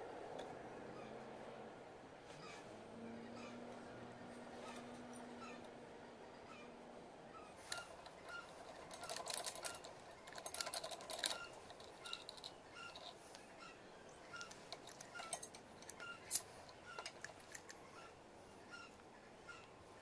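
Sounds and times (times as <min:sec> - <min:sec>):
metal crank handle clicks and rattles: 0:07.6 - 0:13.3, 0:14.2 - 0:17.8.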